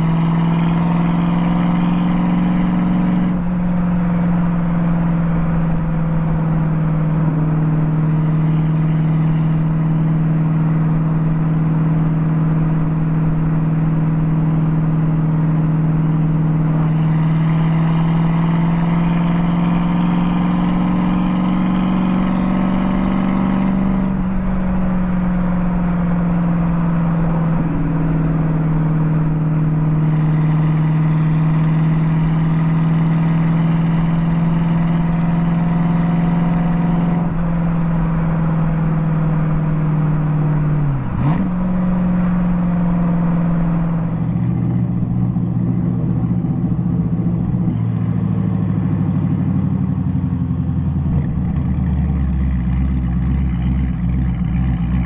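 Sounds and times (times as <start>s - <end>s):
car engine exhaust cruising: 0.0s - 55.0s.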